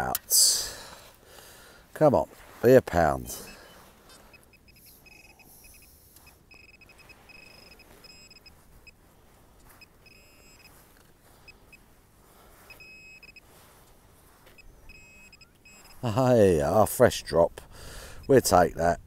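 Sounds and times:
metal detector pinpointer beeping: 0:03.4 - 0:09.0, 0:09.6 - 0:11.9, 0:12.7 - 0:13.5, 0:14.5 - 0:16.0, 0:18.2 - 0:18.5.

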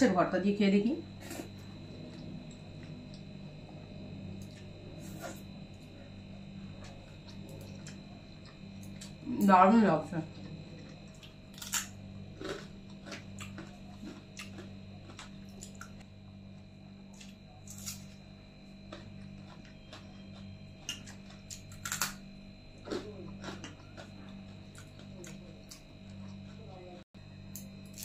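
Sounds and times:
steady low hum: 0:00.0 - 0:28.0
chewing: 0:06.6 - 0:09.2, 0:10.3 - 0:16.0, 0:18.9 - 0:22.2, 0:22.8 - 0:26.8.

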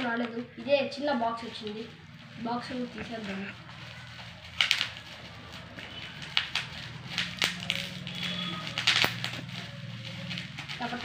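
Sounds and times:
plastic wrapping crinkling: 0:00.0 - 0:11.0
sharp plastic snaps: 0:06.2 - 0:09.4.

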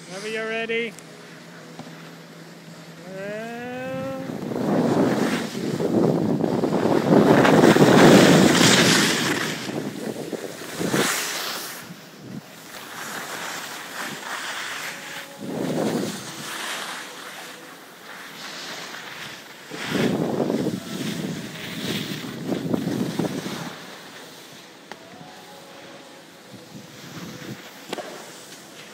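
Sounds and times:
skis scraping over snow: 0:00.0 - 0:28.9
wind rushing over microphone: 0:03.7 - 0:11.2, 0:15.3 - 0:16.4, 0:19.8 - 0:23.8.

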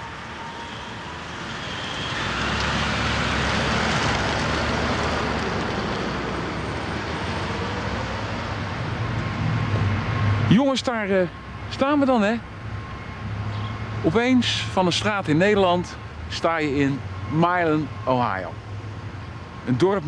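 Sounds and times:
car driving away: 0:01.9 - 0:10.5.

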